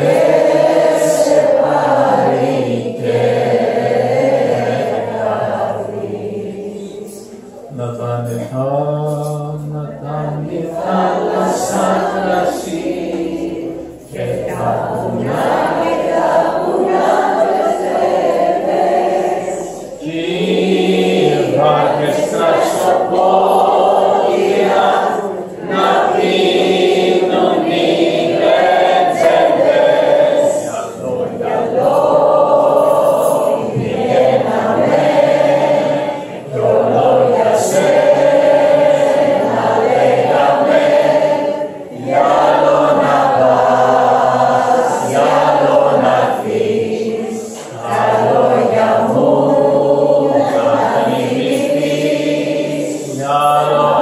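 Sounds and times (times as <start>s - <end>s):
group singing together: 0.0s - 54.0s
man singing into microphone: 6.8s - 13.0s.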